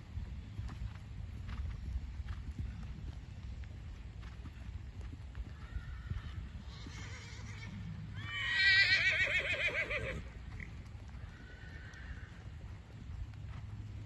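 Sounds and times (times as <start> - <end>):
horse whinnying: 6.8 - 10.3.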